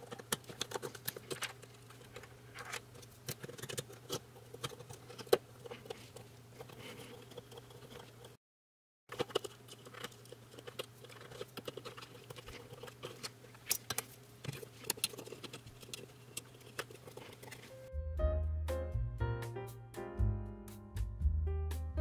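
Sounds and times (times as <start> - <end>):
screwdriver clicking and scraping metal: 0.0 - 8.4, 9.1 - 17.7
wires being handled: 0.0 - 8.4, 9.1 - 17.8.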